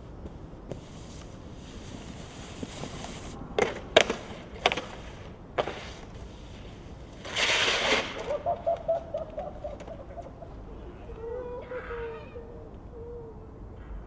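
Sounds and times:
snowboard sliding across slushy snow: 0.3 - 3.4, 4.2 - 8.6.

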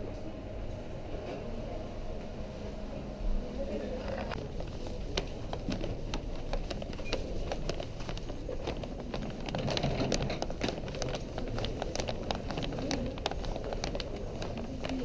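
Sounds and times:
rumble of busy hall: 0.0 - 15.0
footsteps clicking: 4.3 - 15.0.

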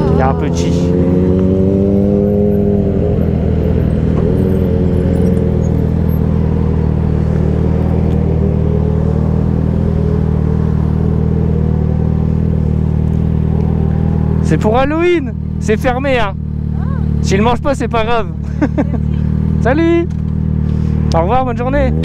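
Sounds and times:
motorcycle engine idling: 11.0 - 21.2.

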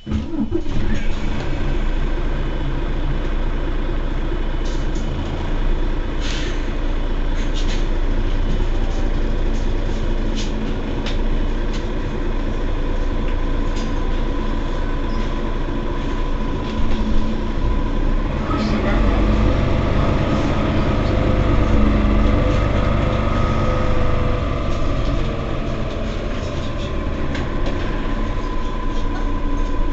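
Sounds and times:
bus engine idling: 0.0 - 29.9.

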